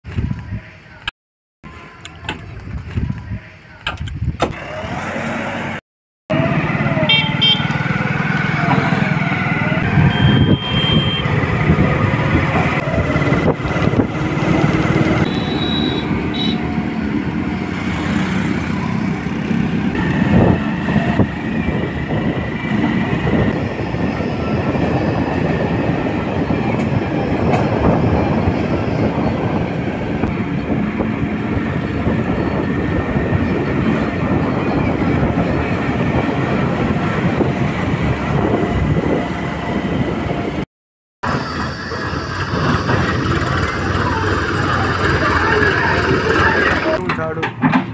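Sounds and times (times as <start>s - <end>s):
diesel engine running: 4.5s - 40.6s, 41.2s - 47.9s
short high tones: 10.0s - 11.4s.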